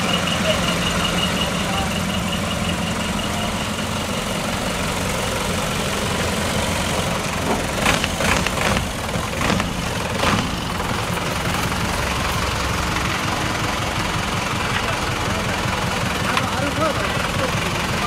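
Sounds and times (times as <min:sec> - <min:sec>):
truck engine idling: 0:00.0 - 0:18.0.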